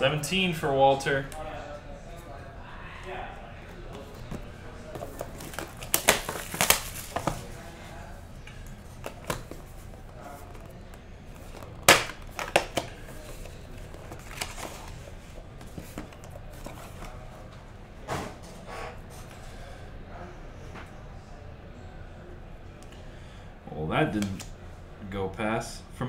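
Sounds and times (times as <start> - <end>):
wrapper crinkling: 5.0 - 7.6.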